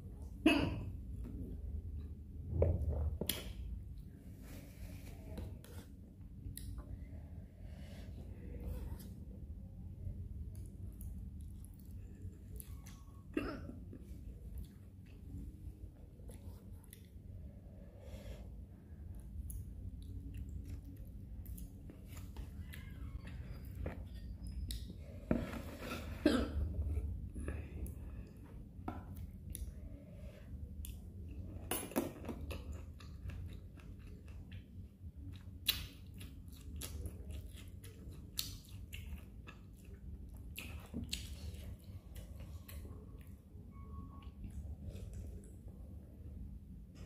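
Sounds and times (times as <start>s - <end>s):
chewing noodles: 30.8s - 45.6s.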